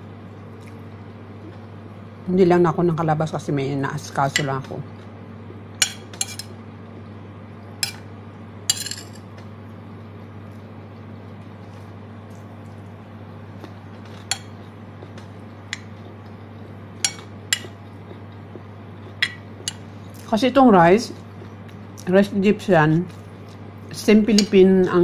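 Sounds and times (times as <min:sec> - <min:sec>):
steady low hum: 0:00.0 - 0:25.0
metal spoon clinking on plate: 0:08.7 - 0:09.2.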